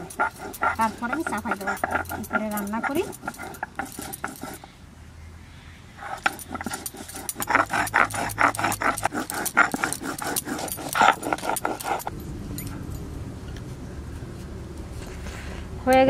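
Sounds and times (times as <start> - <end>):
stone roller grinding on slab: 0.0 - 4.6, 6.0 - 12.1.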